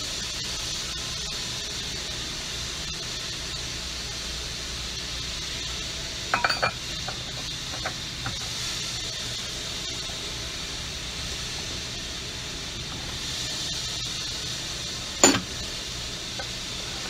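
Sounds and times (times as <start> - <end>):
steady hiss: 0.0 - 17.0
metal parts clinking: 15.2 - 15.5.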